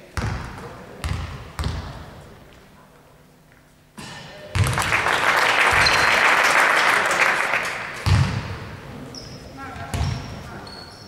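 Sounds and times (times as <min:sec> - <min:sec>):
basketball bouncing on court: 0:00.2 - 0:02.0, 0:04.0 - 0:04.8, 0:08.0 - 0:08.6, 0:09.7 - 0:10.4
spectators clapping: 0:04.6 - 0:08.0.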